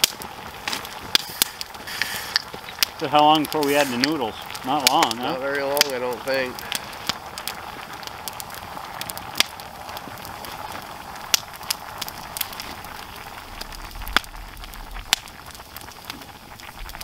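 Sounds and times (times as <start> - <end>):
steady low hiss: 0.0 - 17.0
wood fire crackling and popping: 0.0 - 17.0.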